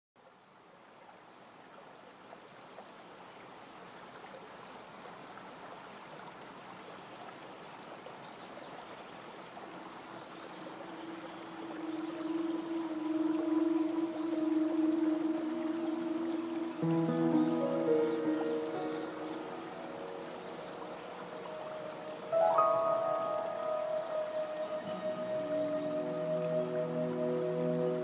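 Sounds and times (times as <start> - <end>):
creek water rushing over rocks: 0.2 - 28.0
held low musical note: 11.6 - 28.0.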